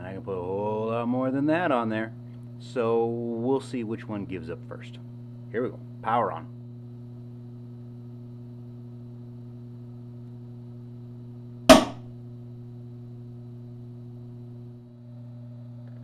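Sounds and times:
electrical hum: 0.0s - 16.0s
component bursting with a pop: 11.7s - 12.1s.

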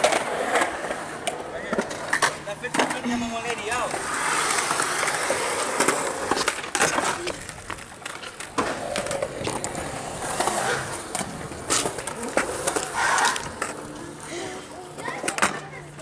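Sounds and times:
skateboard wheels rolling on concrete: 0.0s - 16.0s
skateboard clacks and knocks: 15.0s - 16.0s.

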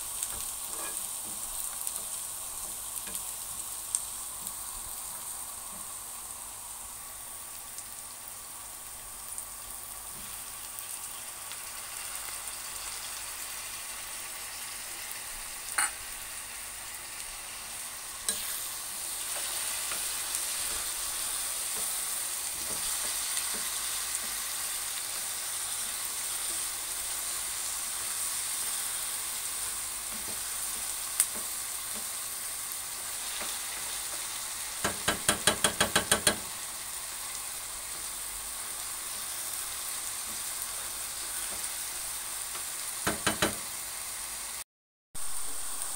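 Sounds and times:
vegetables sizzling in oil: 0.0s - 44.6s, 45.2s - 45.9s
spatula tapping pan: 33.4s - 36.5s, 43.0s - 43.6s.

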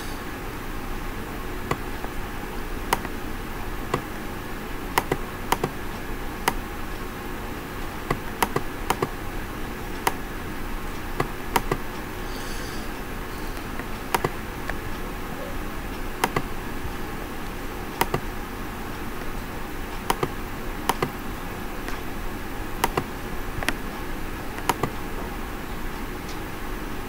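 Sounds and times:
room noise hiss and hum: 0.0s - 27.0s
computer mouse clicks: 2.9s - 3.2s, 5.0s - 5.8s, 8.1s - 9.2s, 11.2s - 12.0s, 13.6s - 14.9s, 16.2s - 16.5s, 17.9s - 18.3s, 20.0s - 21.2s, 22.8s - 23.8s, 24.6s - 25.0s.

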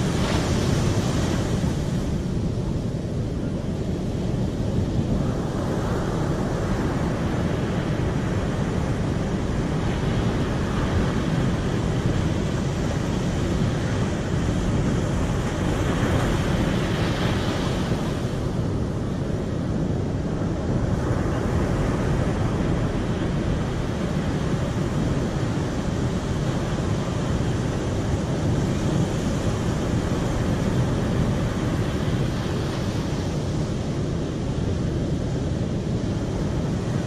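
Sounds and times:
surf breaking on beach: 0.0s - 3.0s
wind on microphone: 0.0s - 37.0s.

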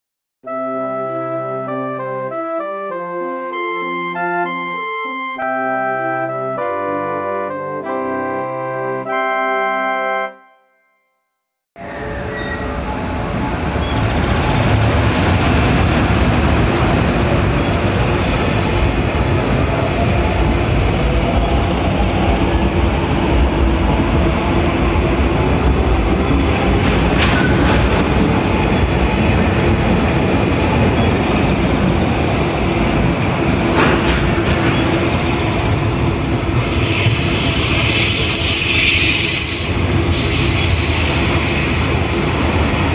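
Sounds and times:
train wheels rumbling on rail: 11.8s - 42.9s.

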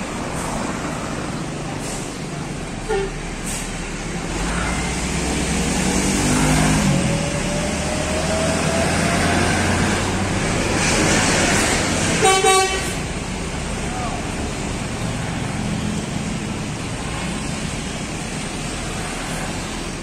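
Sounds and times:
diesel bus passing: 0.0s - 20.0s
motorcycles: 4.2s - 12.2s.

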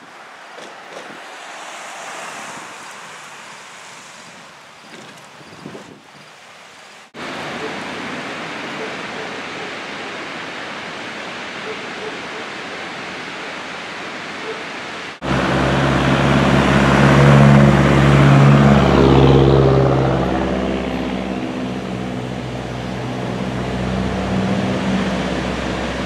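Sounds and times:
steady rushing hiss: 0.0s - 16.3s
vehicle passing by: 0.2s - 4.7s, 15.2s - 26.0s.

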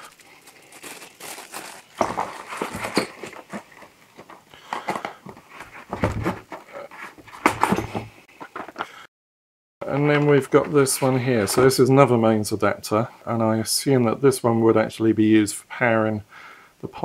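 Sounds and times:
plastic bag crinkling: 0.0s - 4.4s
cardboard inserts rustling: 0.0s - 8.8s
items knocking in box: 1.5s - 5.2s, 5.8s - 6.6s.

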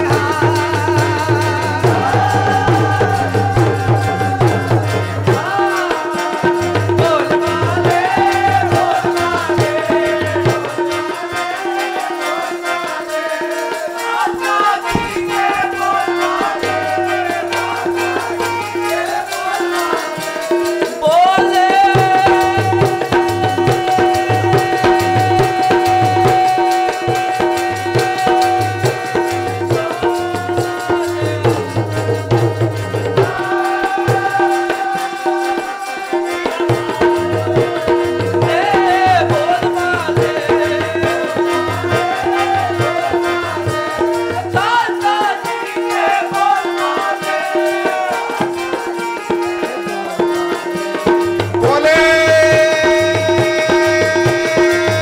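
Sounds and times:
harmonium drone: 0.0s - 55.0s
person singing: 0.0s - 55.0s
tabla strokes: 14.1s - 45.4s.

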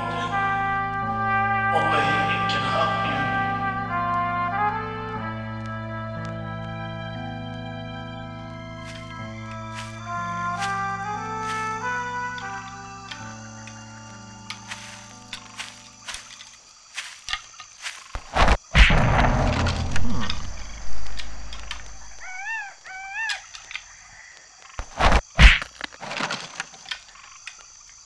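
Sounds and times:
whistled calls: 7.0s - 19.0s, 19.9s - 25.6s
knocks and thuds: 18.1s - 21.9s
loud hits: 18.2s - 22.1s
rumbling noise: 18.2s - 22.3s.

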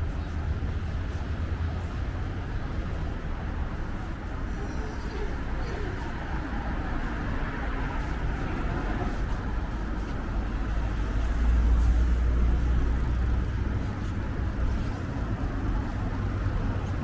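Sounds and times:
cars passing rumble: 0.0s - 17.0s.

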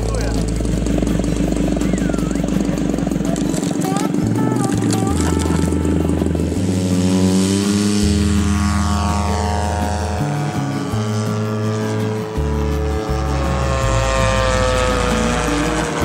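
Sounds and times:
model airplane engine droning: 0.0s - 16.0s.

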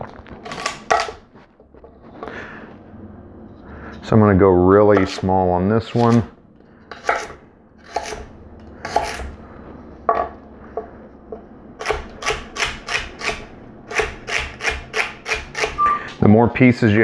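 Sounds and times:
knife chopping on wooden board: 11.8s - 15.8s.

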